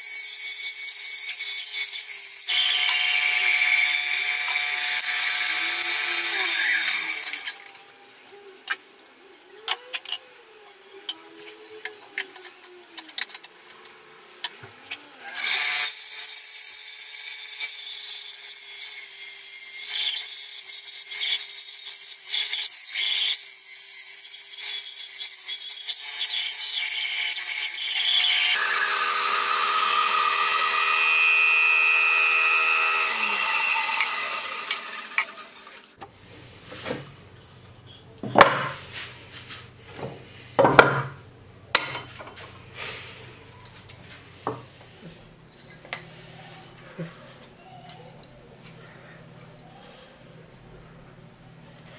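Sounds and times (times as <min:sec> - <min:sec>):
bandsaw cutting wood: 0:01.0 - 0:07.7, 0:24.1 - 0:36.0.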